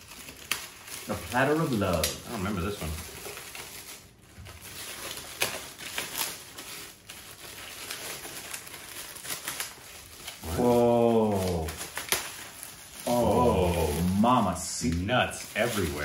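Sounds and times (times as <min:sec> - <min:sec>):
gift wrap crinkling: 0:00.0 - 0:16.0
person speaking: 0:10.4 - 0:11.9, 0:13.0 - 0:16.0.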